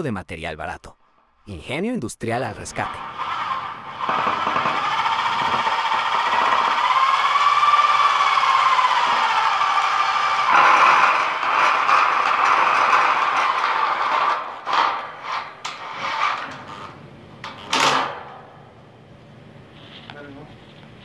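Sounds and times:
machine motor running with rattle: 2.8s - 18.0s.

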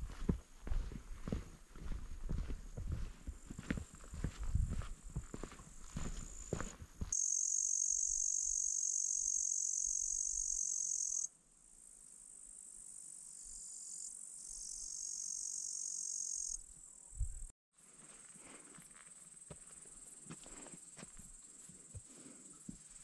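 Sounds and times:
footsteps: 0.0s - 7.2s
insects buzzing: 4.9s - 17.2s.

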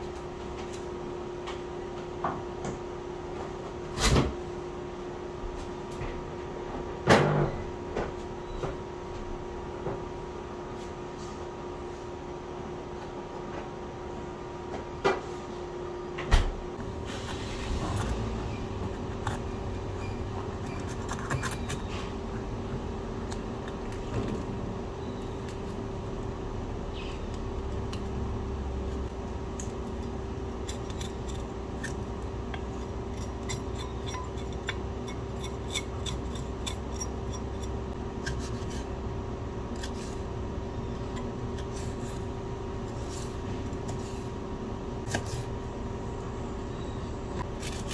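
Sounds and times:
steady low hum: 0.0s - 47.9s
knife slicing pepper: 45.1s - 45.5s, 47.6s - 47.9s.

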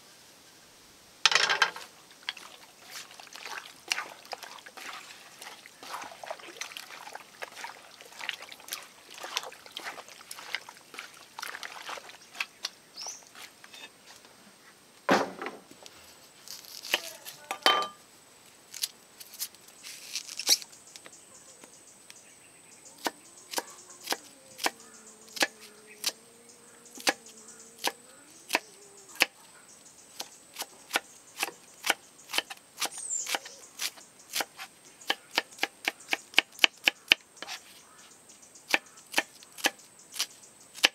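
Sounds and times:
hands mixing raw meat: 2.3s - 12.6s.

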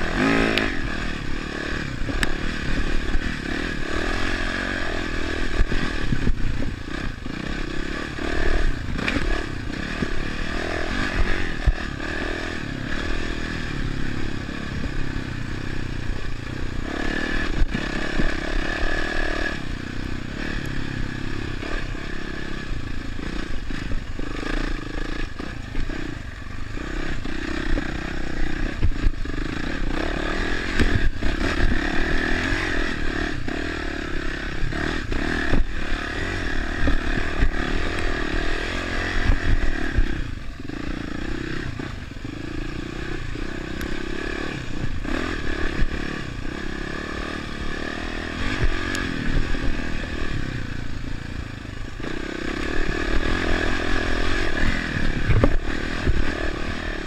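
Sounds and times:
dirt bike engine revving: 0.0s - 57.0s
bike rattling over rough ground: 47.7s - 57.0s.

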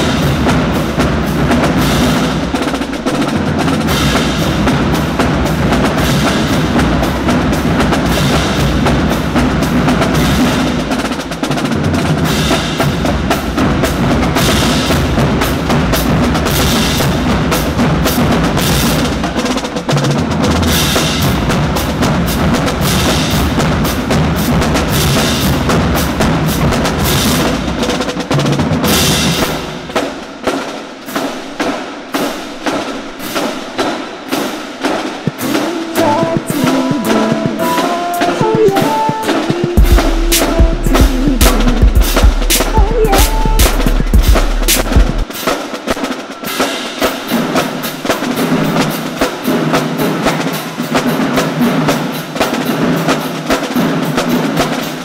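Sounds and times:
snare drums: 0.0s - 55.0s
held pitched notes: 35.4s - 45.2s
bass drums: 38.5s - 45.3s.

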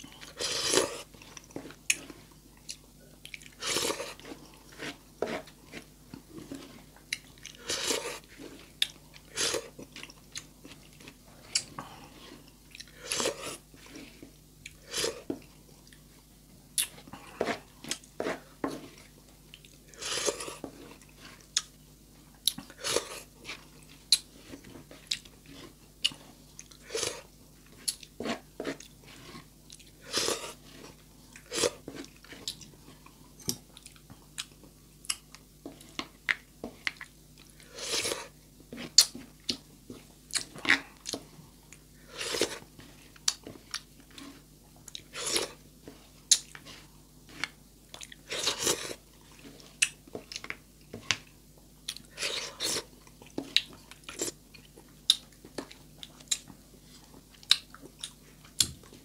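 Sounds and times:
person chewing food: 0.0s - 59.0s.

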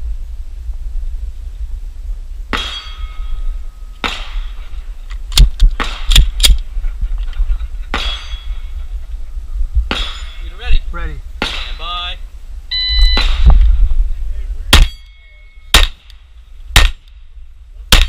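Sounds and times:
steel targets clanging: 2.5s - 4.6s, 7.9s - 8.7s, 9.9s - 10.8s, 14.7s - 16.1s
pistol shots: 14.7s - 15.0s, 15.7s - 16.2s, 16.8s - 17.1s.

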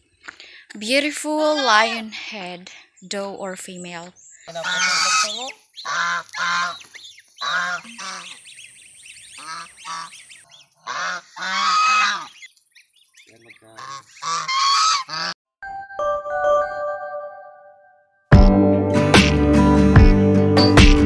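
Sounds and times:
geese honking: 4.4s - 12.5s, 13.2s - 15.4s.

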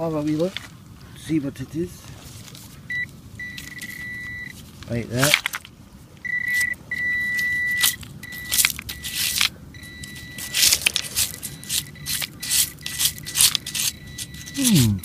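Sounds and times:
high-pitched pinpointer beep: 2.9s - 4.5s, 6.2s - 10.7s, 11.3s - 15.0s
probe scraping against stones: 6.5s - 15.0s.

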